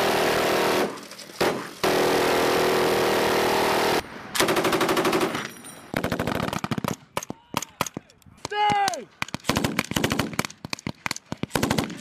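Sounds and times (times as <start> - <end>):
minigun firing continuous burst: 0.0 - 5.4, 9.2 - 12.0
machine gun firing rapid bursts: 0.0 - 7.0, 9.3 - 12.0.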